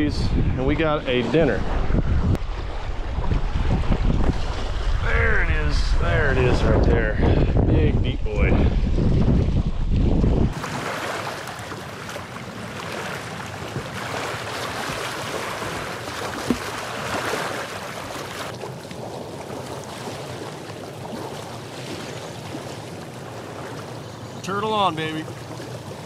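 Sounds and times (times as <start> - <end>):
waves lapping on rocky shore: 10.5 - 26.0.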